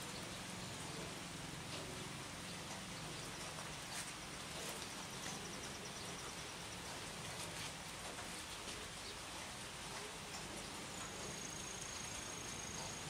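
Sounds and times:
rain falling on shrubs: 0.0s - 13.0s.

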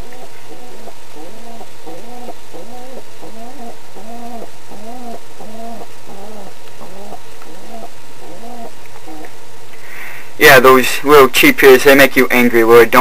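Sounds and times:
pigeon cooing: 0.0s - 9.4s.

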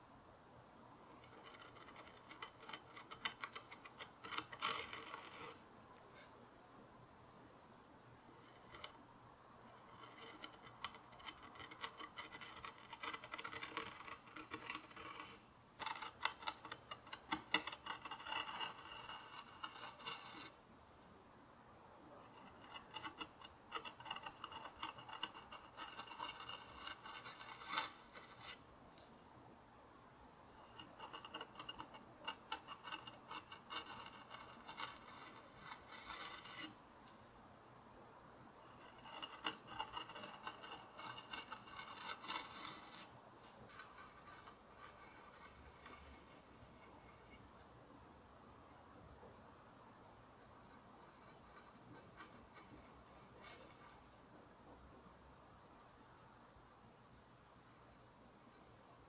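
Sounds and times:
knife carving wood: 1.0s - 6.3s, 8.4s - 9.0s, 9.7s - 20.6s, 22.2s - 28.6s, 30.6s - 36.8s, 38.6s - 47.5s, 50.6s - 54.0s.

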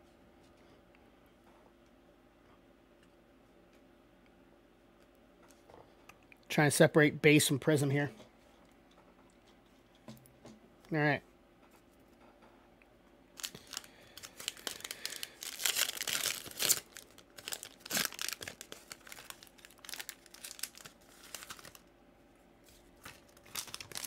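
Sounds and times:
foil wrapper tearing and crinkling: 13.4s - 21.8s, 23.0s - 24.0s.

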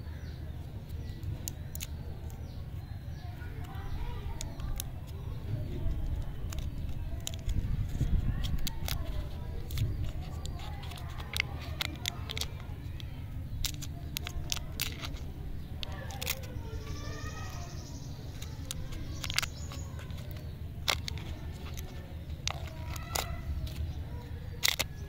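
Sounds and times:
paper wrapper crinkling: 5.8s - 16.6s, 18.3s - 25.0s.

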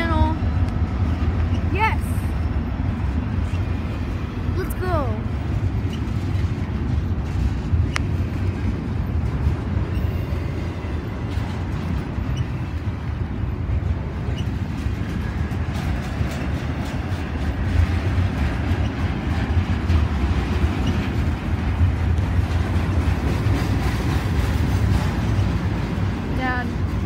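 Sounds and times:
train wheels rumbling on rail: 0.0s - 27.0s
sharp rail clicks: 2.4s - 27.0s.

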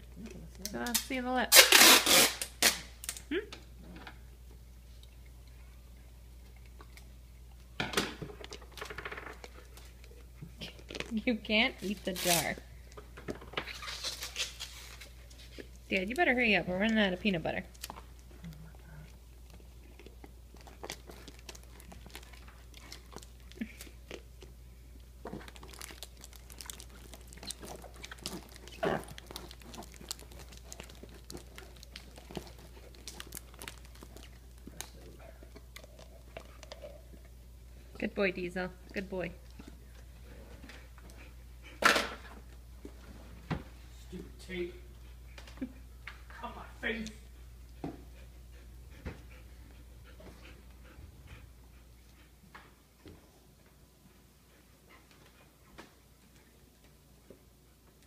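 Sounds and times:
low steady hum: 0.0s - 58.0s
plastic crinkly clicks: 25.3s - 35.0s.

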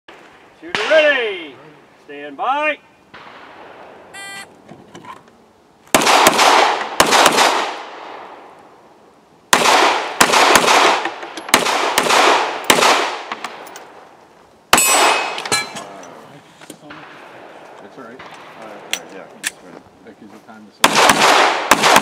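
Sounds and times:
shot timer beep: 4.2s - 4.5s.

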